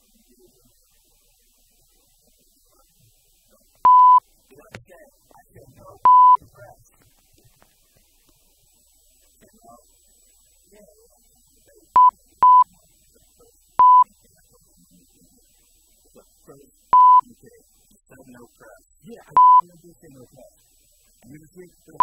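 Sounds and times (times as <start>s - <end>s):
faint low voices: 0.0s - 22.0s
censor bleeps: 3.9s - 4.2s, 6.0s - 6.4s, 12.0s - 12.7s, 13.8s - 14.1s, 17.0s - 17.3s, 19.3s - 19.6s.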